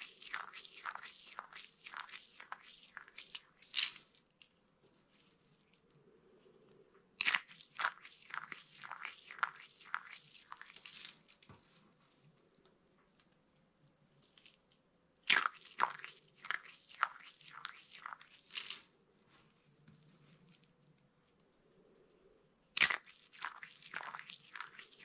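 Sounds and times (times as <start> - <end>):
soap curls crunching: 0.0 - 5.8, 7.2 - 11.5, 13.8 - 18.9, 22.8 - 25.0.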